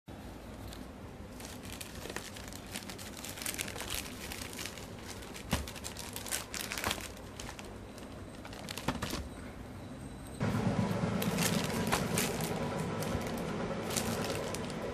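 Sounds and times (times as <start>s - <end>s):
plastic bag crinkling: 1.2s - 9.3s, 11.1s - 14.9s.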